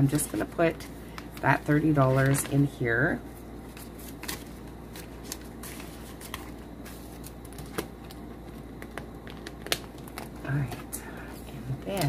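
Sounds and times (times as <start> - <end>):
low steady hum: 0.0 - 12.0
plastic and paper crinkles: 1.2 - 2.7, 3.7 - 10.9.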